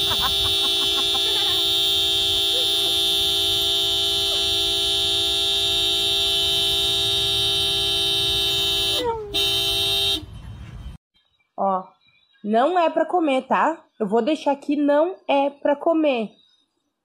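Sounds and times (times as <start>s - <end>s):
car horn honking: 0.0s - 10.5s.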